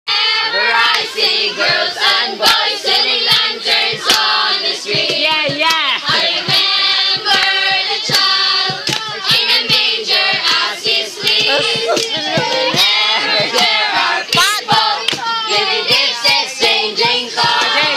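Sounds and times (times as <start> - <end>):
group singing loudly: 0.1 - 17.9
hand claps: 3.2 - 6.6, 7.2 - 9.8, 10.4 - 12.8, 13.4 - 15.5.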